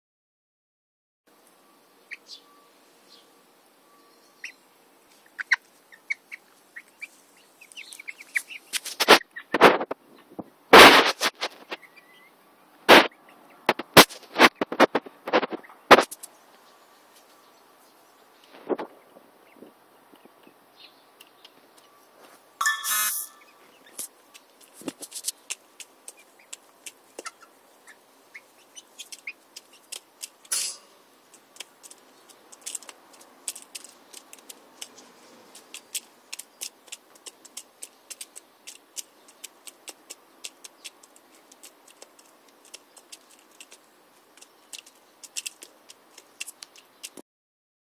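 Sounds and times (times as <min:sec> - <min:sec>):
hens pecking seed: 0:04.4 - 0:12.2, 0:12.9 - 0:16.4, 0:23.2 - 0:47.2.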